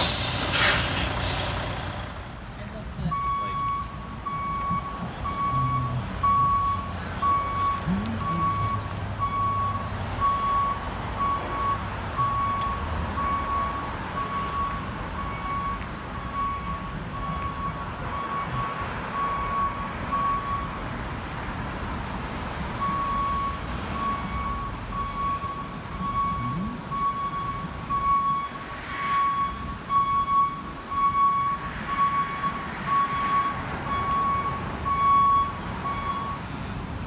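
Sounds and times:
back-up alarm beeping: 0.0 - 2.4, 3.1 - 20.8, 22.8 - 36.4
truck engine rumble: 0.0 - 28.8.

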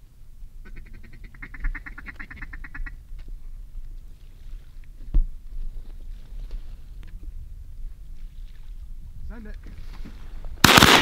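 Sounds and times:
duck call quacking: 0.6 - 3.0.

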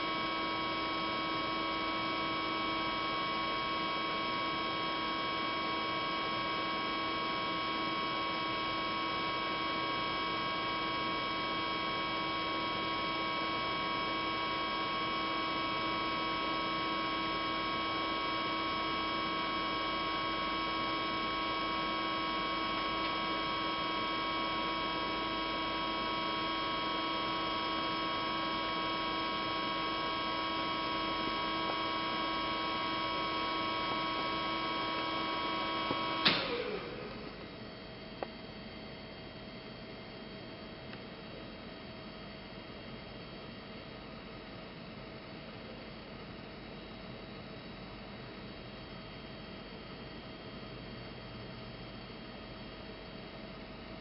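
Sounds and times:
hydraulic press humming: 31.6 - 37.7.

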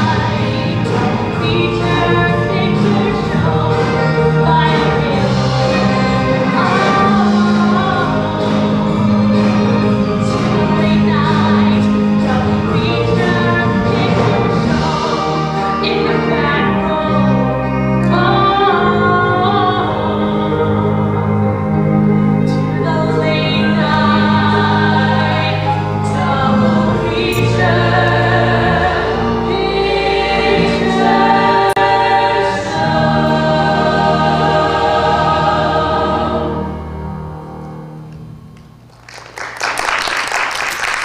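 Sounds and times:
woman singing lead: 0.0 - 9.5, 10.2 - 21.2, 22.4 - 36.7
rock band playing: 0.0 - 19.3
chorus singing: 0.0 - 38.0
people clapping: 38.6 - 41.0.

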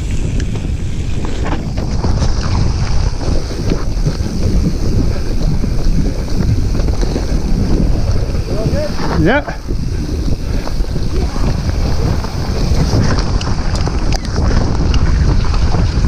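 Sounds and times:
bike knocking and rattling: 0.0 - 16.0
bike tyres rumbling on dirt: 0.0 - 16.0
wind buffeting microphone: 0.0 - 16.0.

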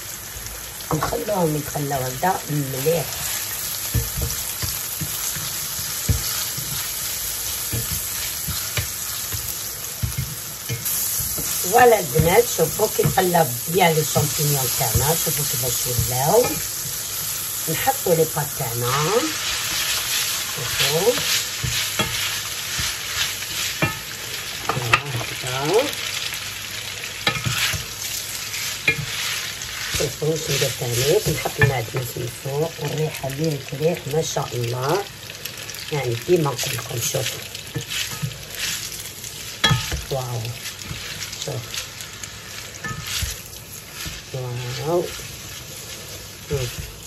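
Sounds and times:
mushrooms sizzling in a pan: 0.0 - 47.0
spatula knocking against pan: 3.9 - 6.9
spoon knocking against pan: 3.9 - 6.9, 7.7 - 13.4, 39.6 - 40.1.

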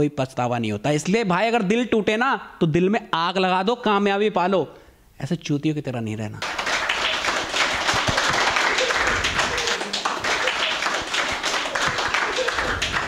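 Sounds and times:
audience applause: 6.4 - 13.0.

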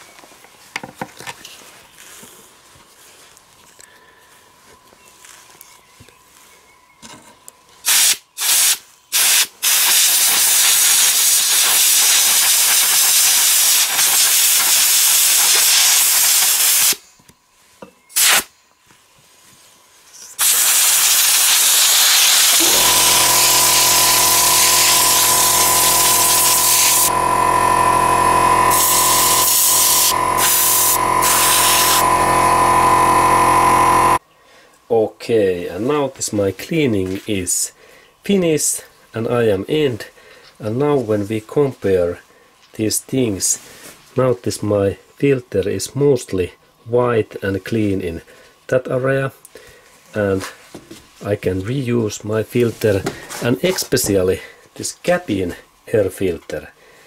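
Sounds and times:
compressed air blow gun hissing: 7.8 - 17.0, 18.2 - 18.5, 20.4 - 32.7
motor hum with high whine: 21.3 - 34.2.

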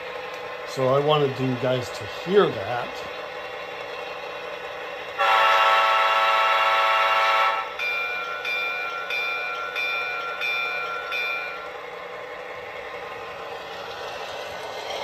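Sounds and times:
diesel air horn blast: 5.2 - 7.6
locomotive bell ringing: 7.5 - 11.8.

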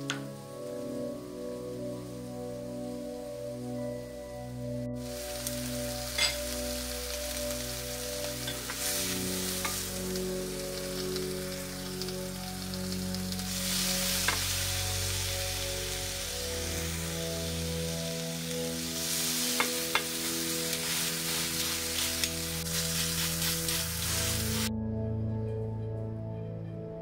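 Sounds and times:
chicken sizzling in grill pan: 5.0 - 24.7
metal tongs clicking on pan: 6.2 - 6.6.

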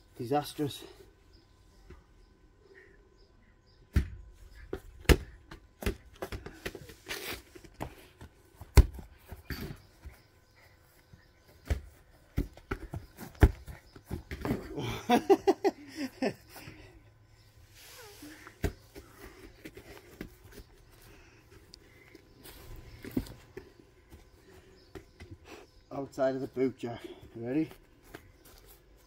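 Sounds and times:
football kicked and bouncing: 3.9 - 6.9, 7.8 - 10.3, 11.6 - 14.8
footsteps on grass: 27.4 - 29.0.

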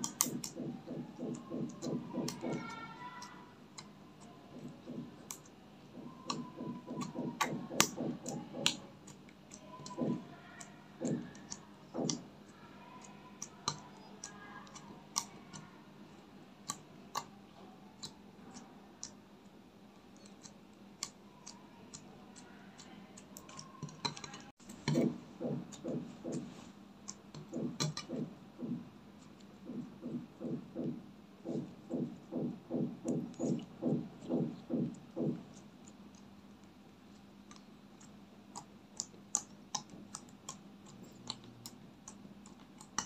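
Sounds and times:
low slime squelches: 20.0 - 43.0.

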